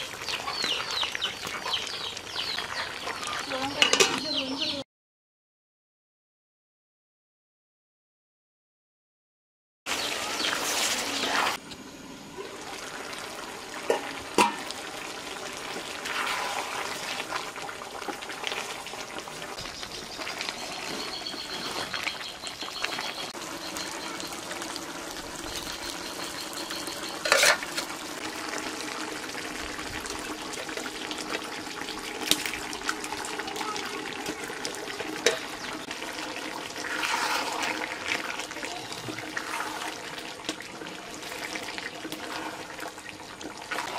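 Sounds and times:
curry simmering and sizzling in pot: 0.0 - 4.8, 9.9 - 43.9
spoon stirring and knocking pot: 27.2 - 27.9.

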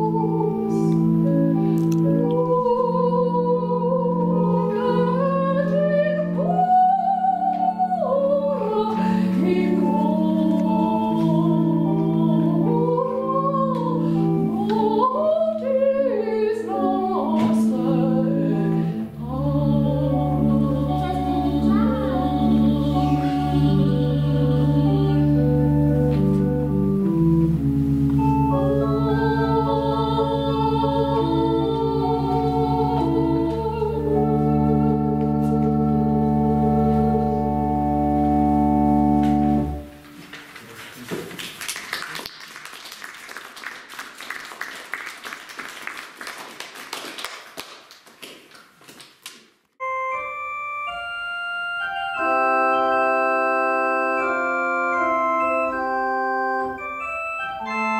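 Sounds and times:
soprano singing with vibrato: 0.0 - 1.0, 2.0 - 25.8, 28.4 - 37.8
pipe organ chords: 0.0 - 40.2, 49.8 - 57.9
audience applause: 40.9 - 49.1.

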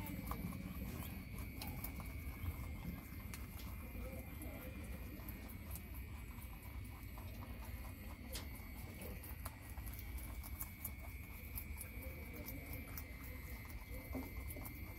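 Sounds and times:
rabbits crunching carrot: 0.0 - 14.9.

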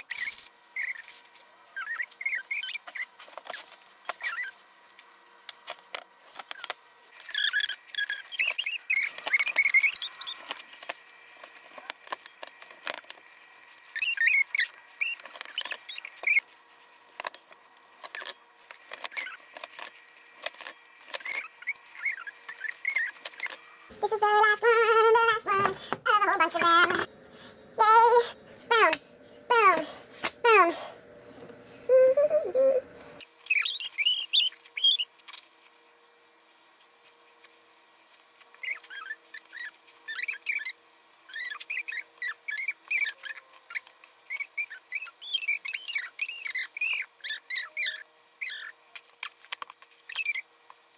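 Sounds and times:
faint steady hum: 0.0 - 50.9
high chirping animal calls: 1.7 - 3.1, 7.2 - 10.4, 13.8 - 16.4, 21.2 - 23.6, 33.4 - 35.5, 38.6 - 48.8.

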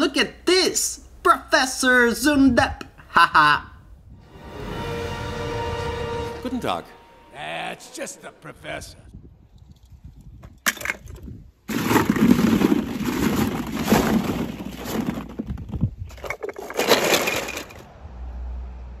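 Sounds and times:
plastic balls clattering: 10.7 - 17.8.

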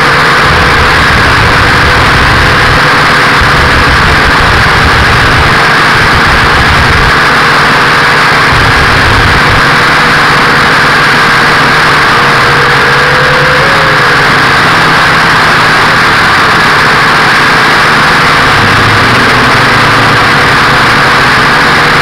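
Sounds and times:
low rumble: 0.0 - 7.2
quadcopter buzzing whine: 0.0 - 22.0.

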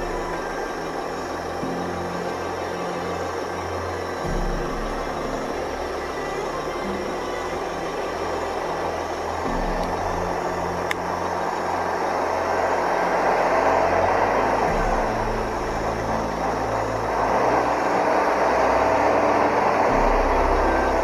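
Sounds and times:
diesel truck engines idling: 0.0 - 21.0
road rumble: 0.0 - 21.0.

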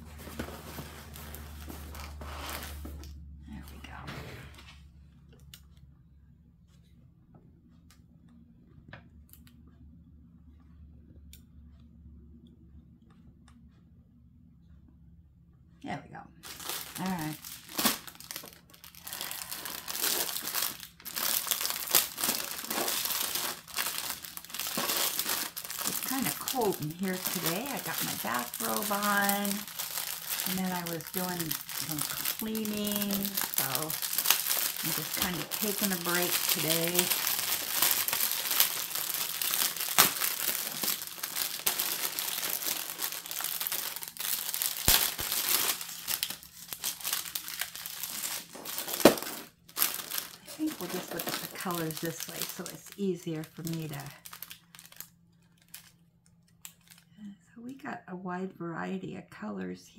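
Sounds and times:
plastic wrap crinkling: 0.0 - 3.2, 16.4 - 57.2.

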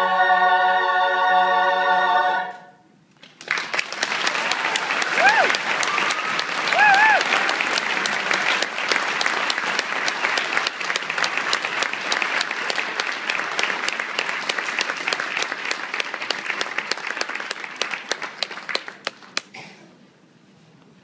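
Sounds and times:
audience applauding: 3.2 - 19.6.

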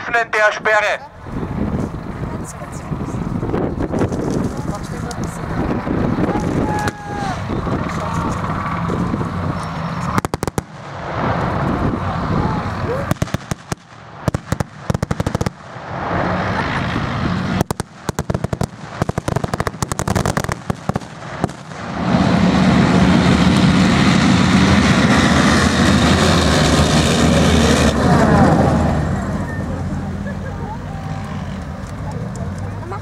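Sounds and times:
tracked vehicle engine and tracks: 0.0 - 33.0.

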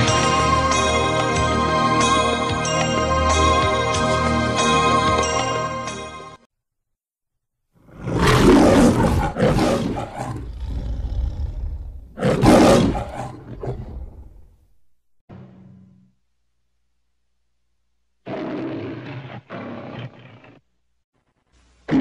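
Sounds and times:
lion roaring: 7.9 - 14.5, 18.3 - 20.6.

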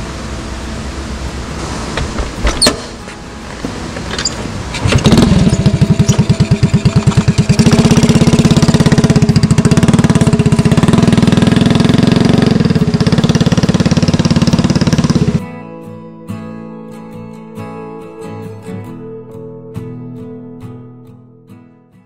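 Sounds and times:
motorcycle engine running: 0.0 - 15.4.

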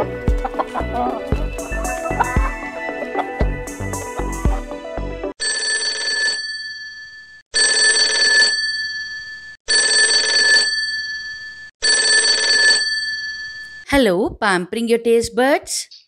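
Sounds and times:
music: 0.0 - 5.4
phone ringing: 5.4 - 13.8.

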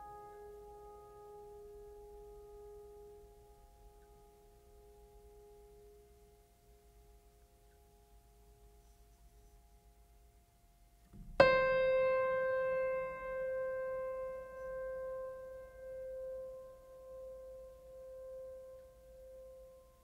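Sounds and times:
piano note ringing: 11.2 - 20.0.

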